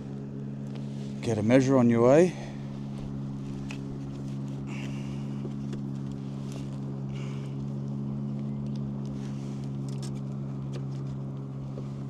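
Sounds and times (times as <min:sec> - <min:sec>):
low mechanical hum: 0:00.0 - 0:12.0
taps and rustles handling fish: 0:08.6 - 0:12.0.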